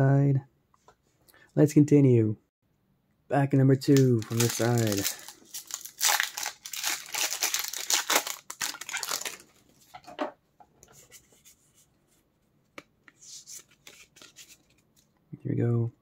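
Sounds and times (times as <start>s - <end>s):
foil wrapper tearing and crinkling: 3.9s - 9.5s.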